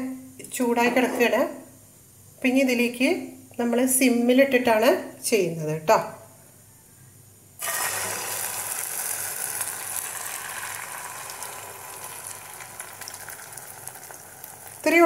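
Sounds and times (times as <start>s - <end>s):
batter sizzling in hot oil: 7.6s - 15.0s.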